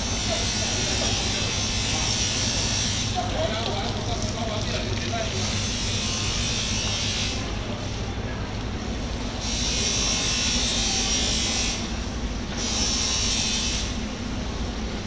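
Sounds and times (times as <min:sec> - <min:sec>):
water spraying from a hose: 0:00.0 - 0:07.5
low mechanical hum: 0:00.0 - 0:15.0.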